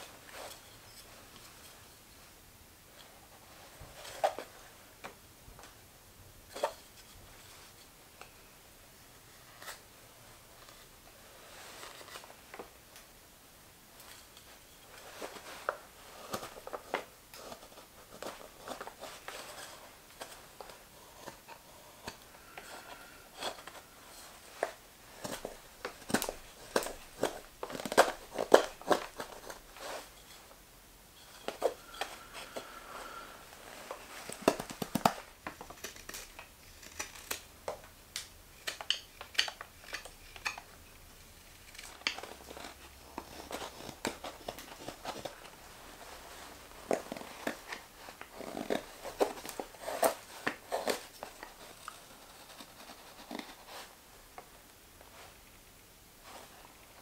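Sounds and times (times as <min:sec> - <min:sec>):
knife carving wood: 0:21.0 - 0:30.0, 0:34.2 - 0:37.5, 0:38.2 - 0:40.7, 0:41.4 - 0:45.3, 0:46.8 - 0:53.8.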